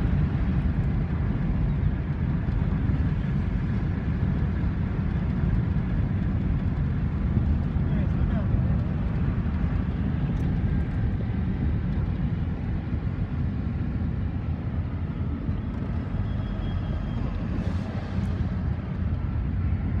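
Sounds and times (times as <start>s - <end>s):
car road and tyre rumble: 0.0s - 20.0s.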